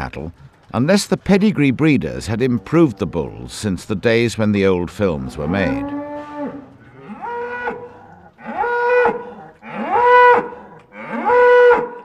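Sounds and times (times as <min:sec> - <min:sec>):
cattle mooing: 0:05.1 - 0:12.0.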